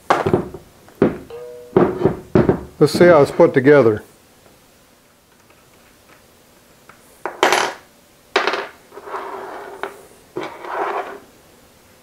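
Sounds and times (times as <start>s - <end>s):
sharp ringing metal knocks: 1.0s - 2.6s.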